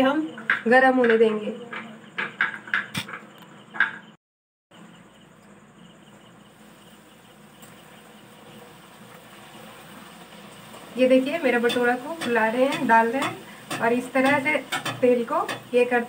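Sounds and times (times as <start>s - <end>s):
sharp click: 2.9s - 3.5s
dough deep-frying in oil: 5.1s - 16.0s.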